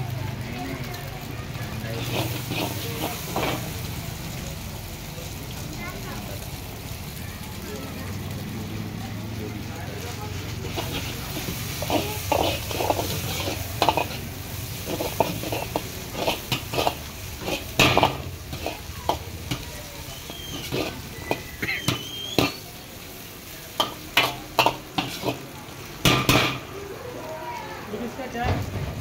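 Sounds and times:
food sizzling: 0.0 - 29.0
metal ladle scraping wok: 1.8 - 4.0, 10.3 - 26.7.

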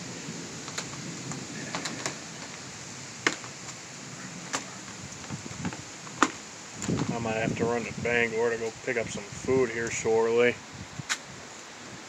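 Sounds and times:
storm wind hiss: 0.0 - 12.0.

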